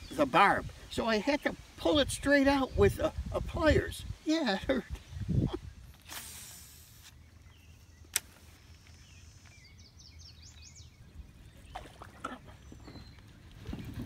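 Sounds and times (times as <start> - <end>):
faint bird chirps: 7.0 - 14.0.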